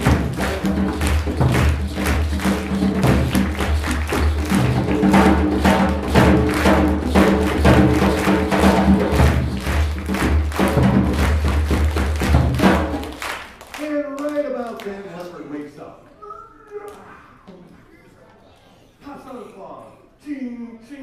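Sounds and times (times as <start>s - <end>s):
samba drumming: 0.0s - 13.5s
person speaking: 13.8s - 21.0s.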